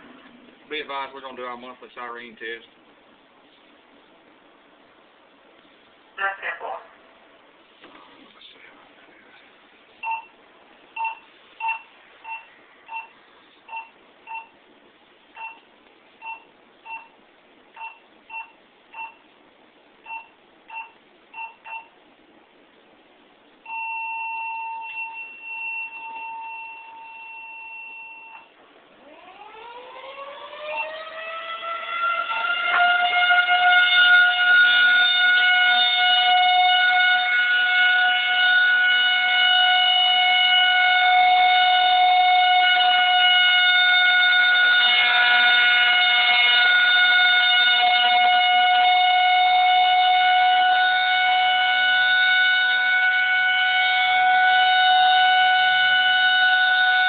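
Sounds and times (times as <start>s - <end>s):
warning siren winding up: 23.7s - 57.0s.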